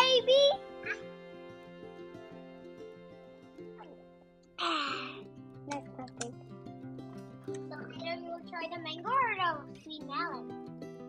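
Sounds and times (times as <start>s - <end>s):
quiet background music: 0.0s - 11.0s.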